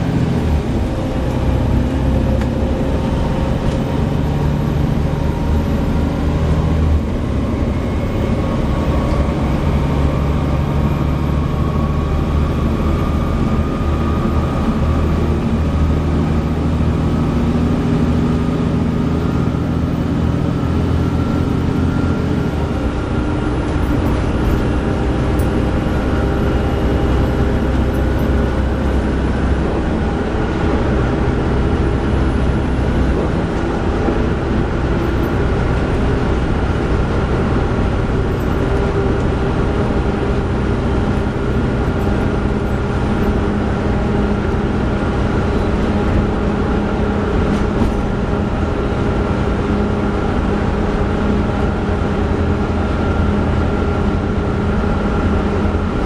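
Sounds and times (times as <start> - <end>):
bus diesel engine drone: 0.0 - 56.0
road noise: 0.0 - 56.0.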